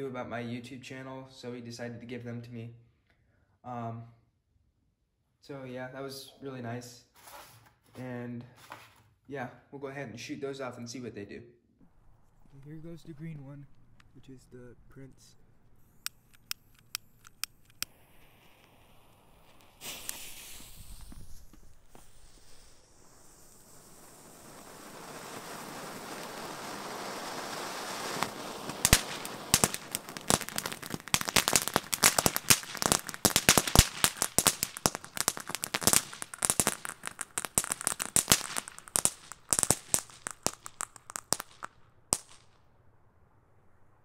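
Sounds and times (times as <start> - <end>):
firework rapid crackling: 16.0 - 42.6
fountain firework hissing: 17.9 - 42.4.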